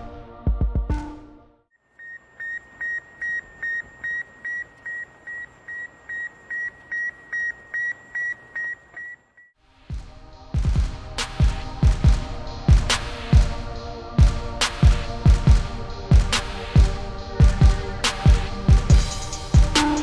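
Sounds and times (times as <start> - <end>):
background music: 0.0 - 1.7, 9.6 - 20.0
short high radio beeps: 2.0 - 9.5.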